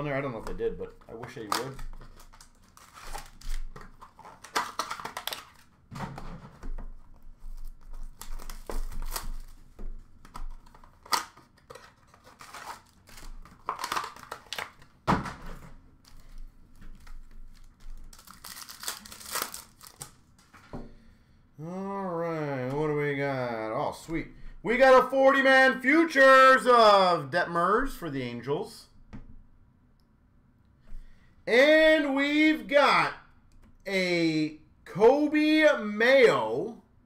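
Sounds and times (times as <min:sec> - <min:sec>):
foil wrappers tearing and crinkling: 0:01.4 - 0:05.7, 0:07.4 - 0:09.6, 0:10.6 - 0:14.9, 0:17.0 - 0:20.2
cards being handled: 0:16.0 - 0:20.8.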